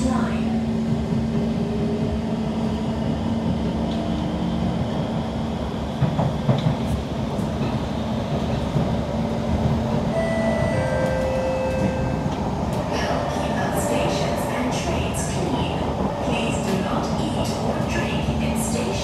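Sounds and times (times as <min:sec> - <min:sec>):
train wheels rumbling on track: 0:00.0 - 0:19.0.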